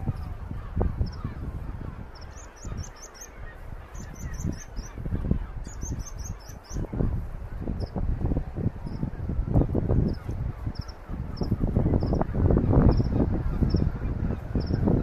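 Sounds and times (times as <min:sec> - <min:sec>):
wind buffeting the microphone: 0:00.0 - 0:15.0
bird chirping: 0:02.1 - 0:06.9.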